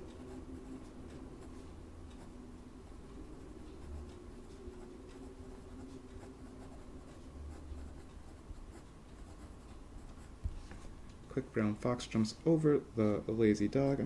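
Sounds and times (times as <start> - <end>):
pen nib scratching paper: 3.3 - 10.4.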